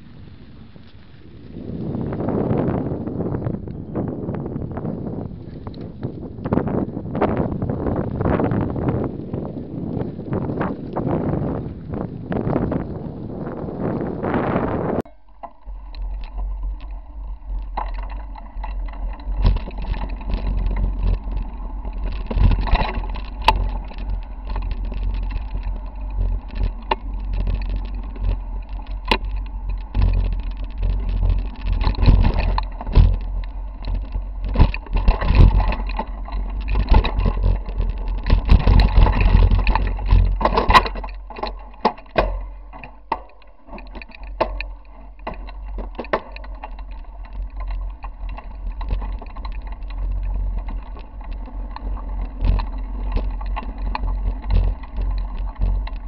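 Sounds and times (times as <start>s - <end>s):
low rumble of bike vibration: 0.0s - 56.0s
bike clattering over rocks: 15.2s - 56.0s.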